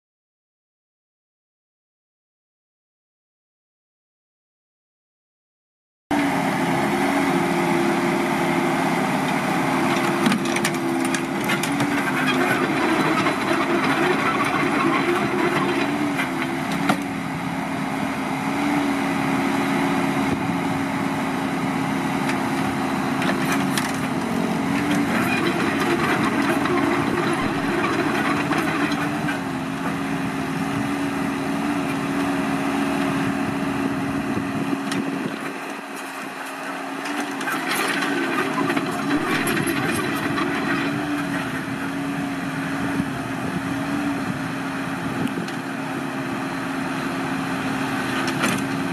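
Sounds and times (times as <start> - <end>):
excavator engine running: 6.1 - 48.9
hydraulic whine: 9.2 - 17.4, 23.2 - 32.4, 37.0 - 44.4.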